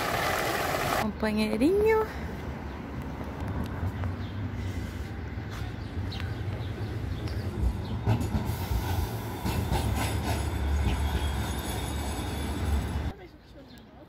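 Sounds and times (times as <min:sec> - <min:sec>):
tram rumbling past: 0:00.0 - 0:13.5
steel wheels squealing on rails: 0:07.4 - 0:13.1.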